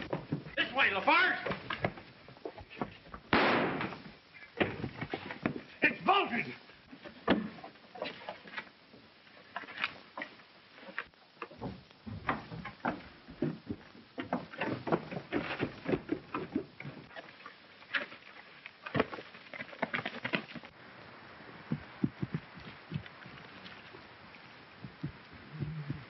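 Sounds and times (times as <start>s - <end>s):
hurried footsteps on wooden steps: 0.0s - 3.3s, 4.0s - 5.8s, 11.4s - 17.1s, 21.7s - 23.4s, 24.8s - 26.0s.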